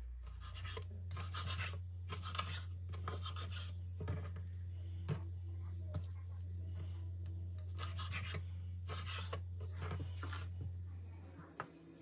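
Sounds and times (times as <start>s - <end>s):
liver rubbing on cutting board: 0.2s - 4.4s, 7.7s - 10.6s.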